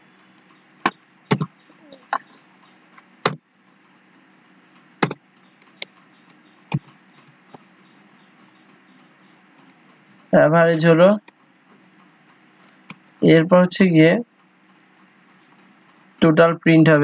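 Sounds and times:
keyboard keys clacking: 0:00.0 - 0:03.8, 0:05.0 - 0:11.4
faint steady hum: 0:00.0 - 0:17.0.

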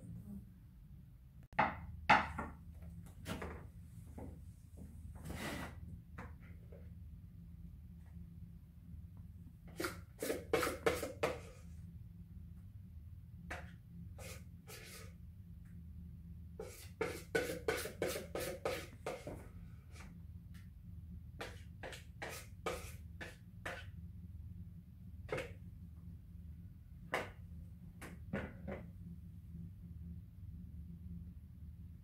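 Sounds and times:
utensil beating mixture in bowl: 0:16.6 - 0:19.4.

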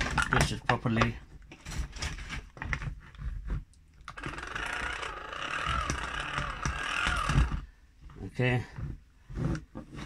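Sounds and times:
hand-crank dynamo whirring: 0:04.1 - 0:07.7.

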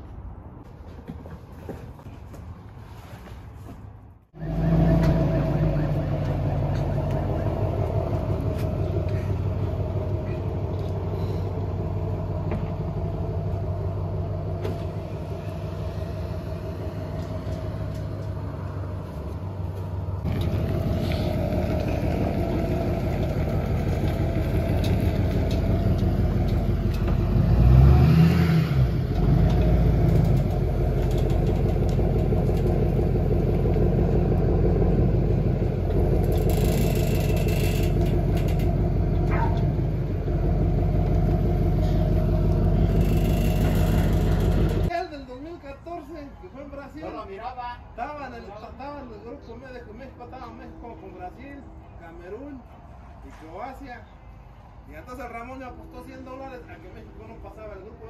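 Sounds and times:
pickup truck engine running: 0:04.4 - 0:27.9, 0:28.9 - 0:44.9.

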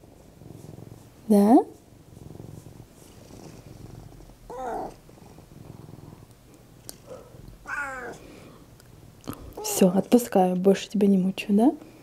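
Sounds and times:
cat purring: 0:00.0 - 0:10.4
cat meowing: 0:04.5 - 0:05.0, 0:07.6 - 0:08.2.

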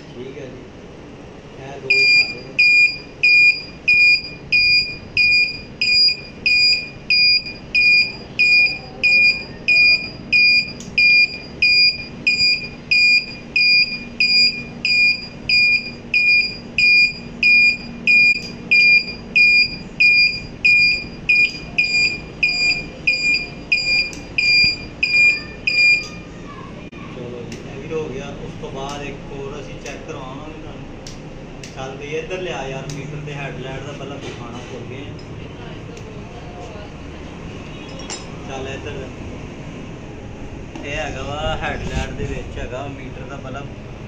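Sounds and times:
turn-signal buzzer beeping: 0:01.9 - 0:26.3.

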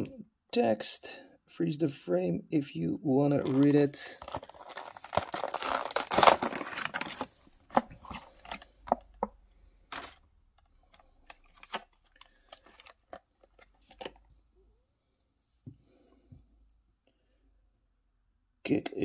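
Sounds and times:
plastic blister packaging clicking: 0:03.4 - 0:09.3.

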